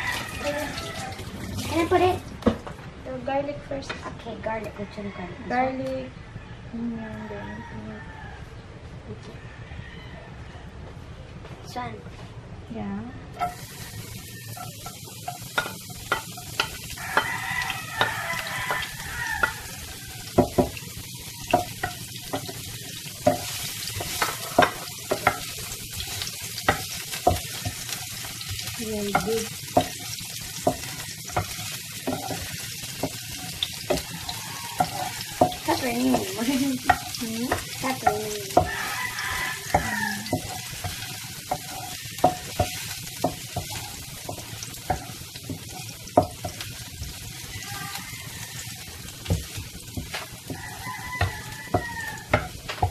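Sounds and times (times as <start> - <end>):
garlic and onion sizzling in oil: 0.0 - 4.8, 12.8 - 52.9
wooden spatula scraping a pan: 29.1 - 48.0.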